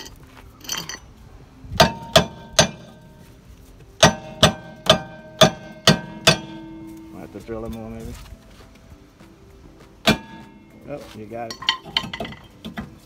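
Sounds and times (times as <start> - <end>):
hammer striking metal brake rotor: 1.8 - 3.3, 4.0 - 7.4, 10.0 - 13.0.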